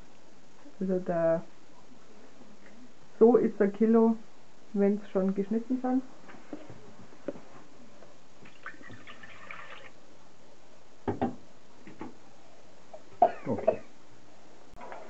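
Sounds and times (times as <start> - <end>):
juice pouring into pot: 8.6 - 10.0.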